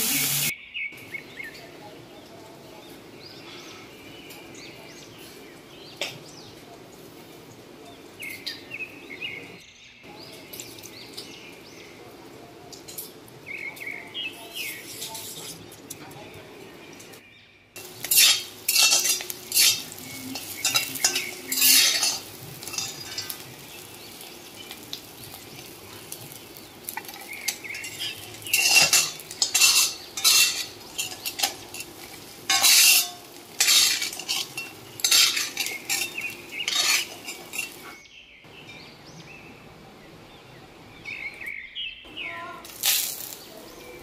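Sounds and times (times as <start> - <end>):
oil sizzling: 0.0 - 0.5, 17.8 - 37.9, 42.6 - 43.6
metal spatula scraping wok: 17.8 - 24.2, 26.9 - 37.9.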